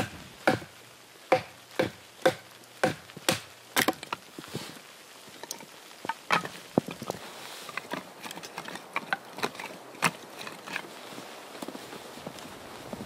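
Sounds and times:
firewood knocking and crunching: 0.0s - 13.0s.

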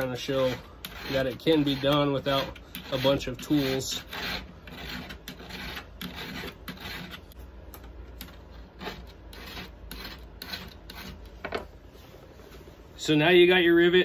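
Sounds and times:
file rasping on steel rivets: 0.0s - 7.2s, 8.2s - 11.3s.

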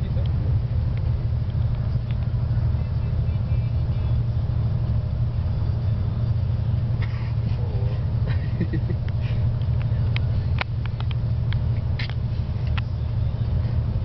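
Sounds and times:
bus engine and tyres drone: 0.0s - 14.0s
light clicks and rattles: 0.1s - 2.4s, 9.0s - 13.2s.

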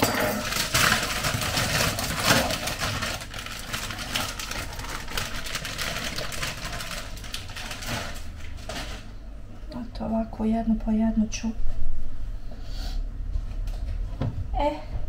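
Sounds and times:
steady low hum: 0.0s - 15.0s
plastic package crinkling: 0.4s - 9.1s.

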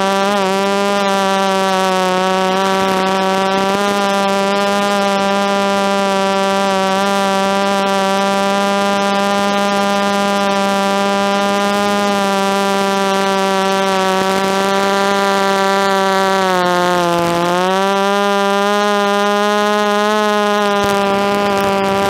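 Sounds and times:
quadcopter motors buzzing: 0.0s - 22.0s.

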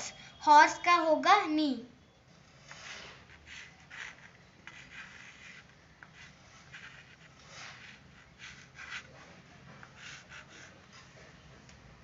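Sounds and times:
chalk scratching on blackboard: 2.4s - 11.2s.

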